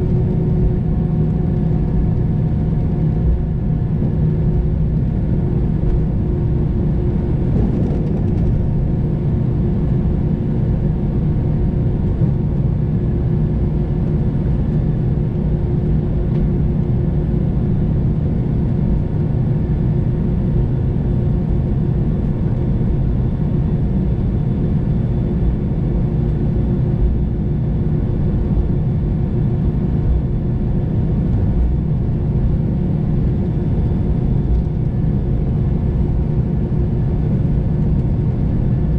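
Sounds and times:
jet engines idling in cabin: 0.0 - 38.9.

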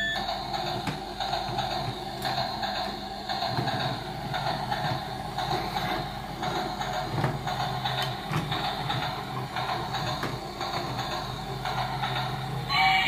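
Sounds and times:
toy train sound effects: 0.0 - 0.7, 8.9 - 13.0
toy train motor whirring: 7.8 - 13.0.

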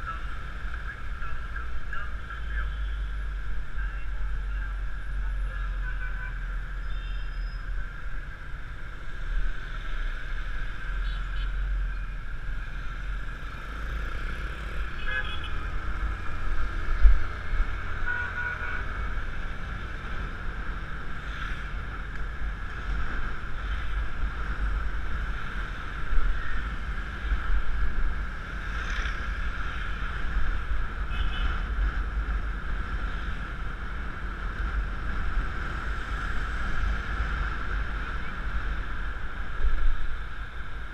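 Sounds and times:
wind and road rumble: 0.0 - 40.9
vehicle horn toots: 18.1 - 18.8, 31.1 - 31.6.

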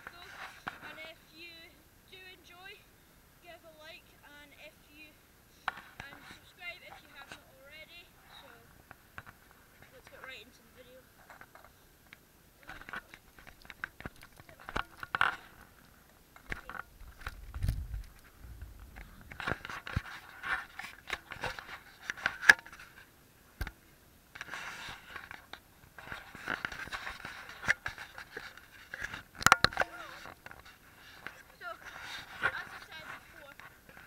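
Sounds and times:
mic rubbing against jacket: 16.8 - 23.0, 24.4 - 25.2, 29.9 - 34.0.

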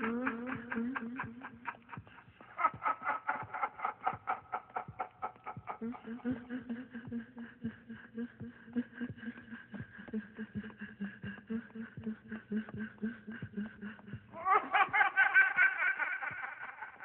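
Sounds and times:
burst of laughter: 0.0 - 6.3, 14.4 - 17.0
soft pulsing ticks: 8.3 - 14.3.

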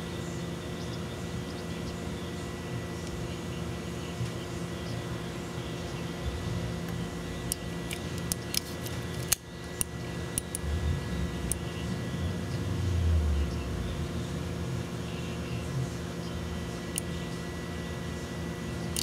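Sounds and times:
steady low hum: 0.0 - 19.0
low handling rumble: 6.1 - 8.2, 10.4 - 15.0.

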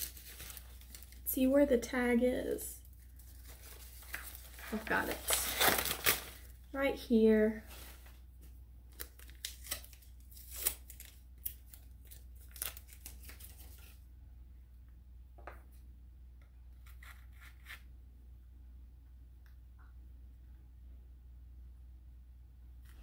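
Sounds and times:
paper wrapping rustling: 0.0 - 1.3, 2.9 - 6.6, 7.5 - 8.2, 8.9 - 14.0.

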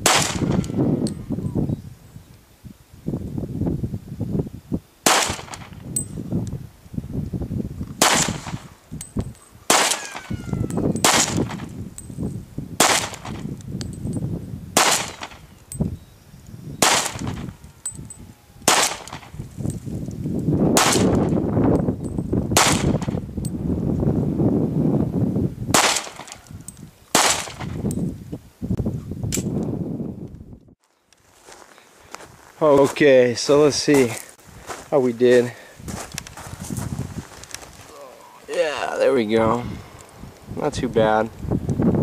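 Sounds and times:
pistol shots: 0.0 - 0.8, 5.0 - 5.8, 8.0 - 8.7, 9.7 - 10.3, 11.0 - 11.7, 12.8 - 13.4, 14.8 - 15.4, 16.8 - 17.4, 18.7 - 19.3, 20.8 - 21.3, 22.6 - 23.1, 25.7 - 26.4, 27.1 - 27.8.

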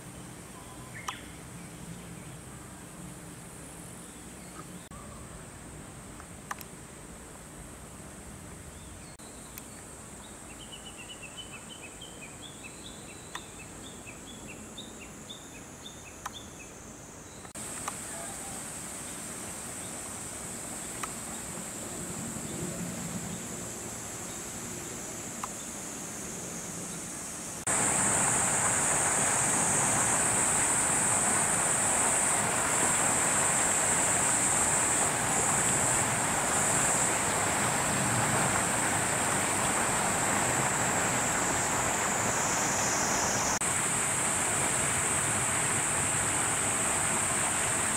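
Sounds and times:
insects droning: 0.0 - 47.9
rushing noise: 27.6 - 47.9.

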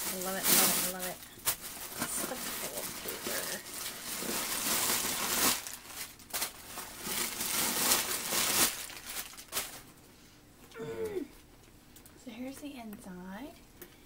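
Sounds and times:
tissue paper rustling: 0.0 - 9.9.

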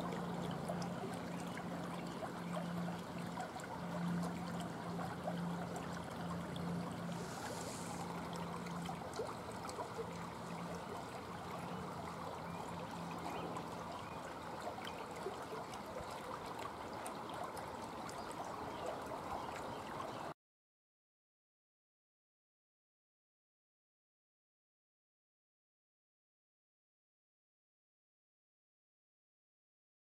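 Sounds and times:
low pulsing hum: 0.0 - 20.3
water trickling: 0.0 - 20.3.

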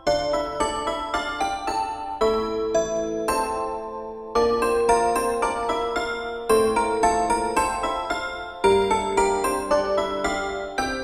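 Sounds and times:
gentle keyboard music: 0.0 - 11.0.

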